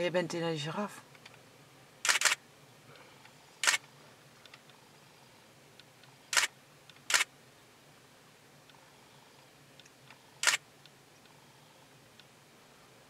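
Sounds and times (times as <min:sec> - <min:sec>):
camera shutter firing: 0:02.0 - 0:02.4, 0:03.6 - 0:03.8, 0:06.3 - 0:07.3, 0:10.4 - 0:10.6.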